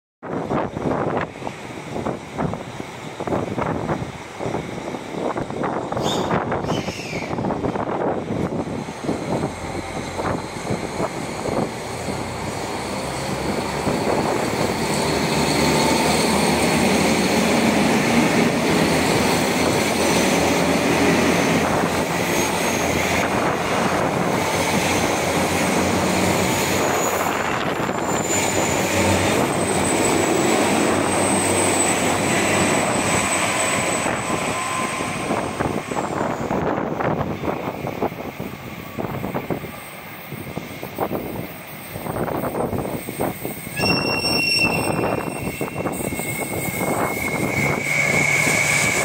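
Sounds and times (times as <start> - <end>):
train wheels rumbling on rails: 0.2 - 49.0
thin high whines: 42.1 - 49.0.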